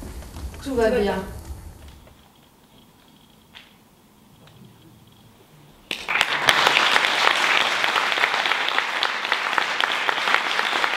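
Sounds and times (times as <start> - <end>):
audience applauding: 5.9 - 10.9.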